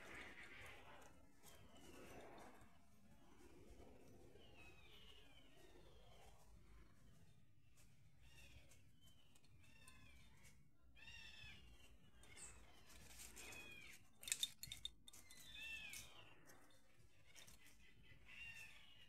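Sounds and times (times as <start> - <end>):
faint bird calls: 4.2 - 14.5, 15.2 - 19.0.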